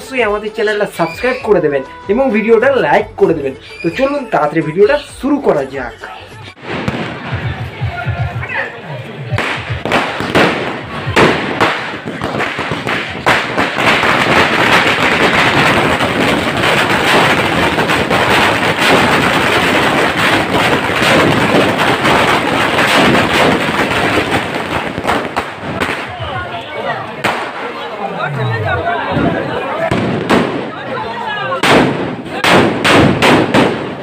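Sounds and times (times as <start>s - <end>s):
firecrackers bursting: 6.5s - 8.5s, 9.3s - 28.1s, 29.1s - 34.0s.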